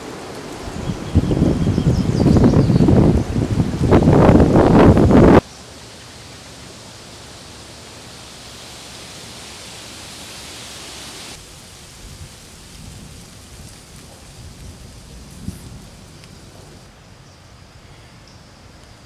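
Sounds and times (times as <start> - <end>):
wind buffeting on microphone: 0.0 - 5.4, 11.2 - 16.9
steady rushing hiss: 0.0 - 19.0.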